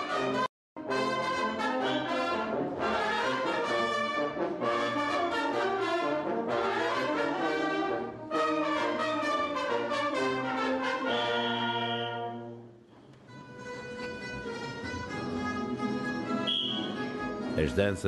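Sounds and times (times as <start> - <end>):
live stage music: 13.1 - 18.0.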